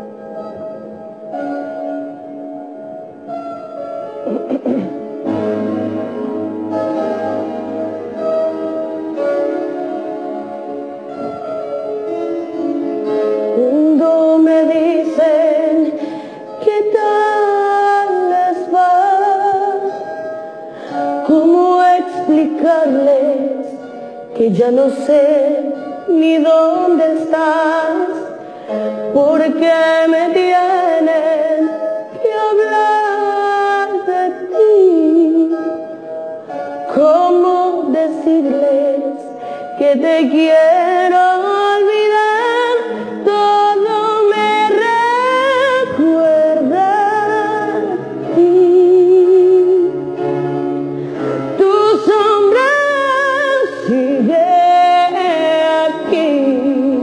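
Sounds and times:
woman singing a ballad: 13.3 - 50.4, 51.2 - 57.0.

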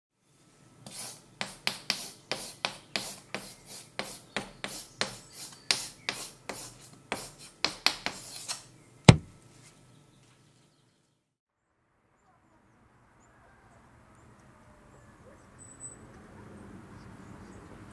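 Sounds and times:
chalk scratching on a blackboard: 0.8 - 8.7
sharp chalk tap: 0.9 - 9.3.

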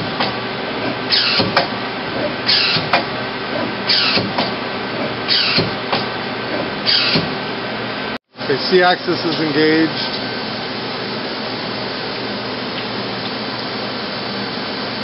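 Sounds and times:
lathe turret click: 0.0 - 7.4
machine humming: 0.0 - 15.0.

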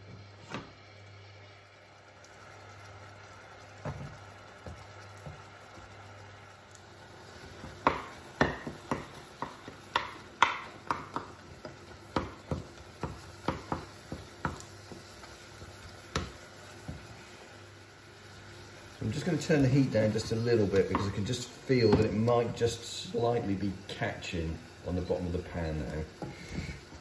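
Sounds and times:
faint sizzle: 0.0 - 27.0
wooden spoon knocking a saucepan: 7.6 - 15.1, 20.3 - 21.2, 21.9 - 22.2.

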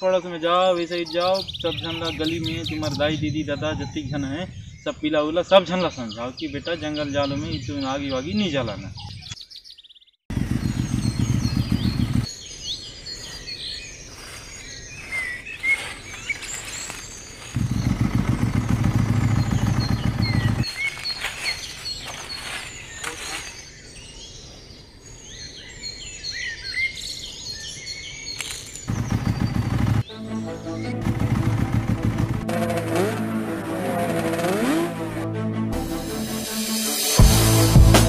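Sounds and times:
birds chirping: 0.0 - 35.2
motorcycle engine running: 10.3 - 12.3, 17.4 - 21.5, 28.9 - 30.1, 30.8 - 35.2.

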